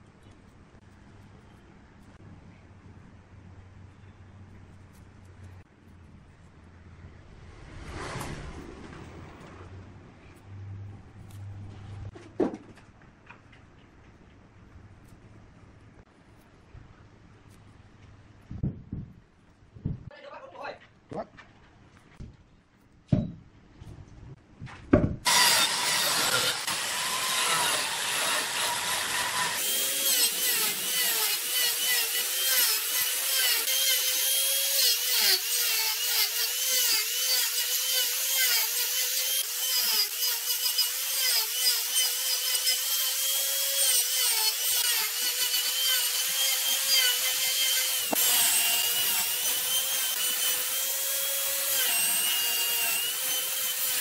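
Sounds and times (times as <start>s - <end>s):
grinder motor whine: 25.3s - 34.2s
angle grinder cutting wood: 25.3s - 54.0s.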